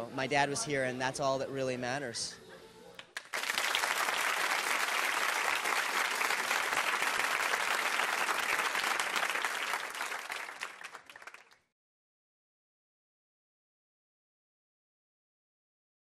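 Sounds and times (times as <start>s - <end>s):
audience applause: 3.2s - 11.6s.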